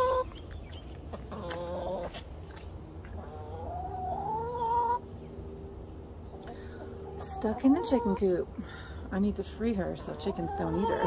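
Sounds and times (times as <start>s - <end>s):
hens making drawn-out calls: 10.0s - 11.0s.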